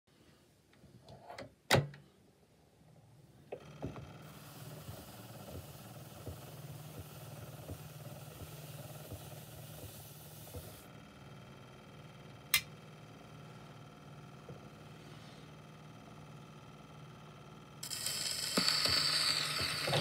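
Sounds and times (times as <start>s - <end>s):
turntable humming: 3.4s - 20.0s
cleaning pad brushing a record: 4.0s - 10.9s, 17.8s - 20.0s.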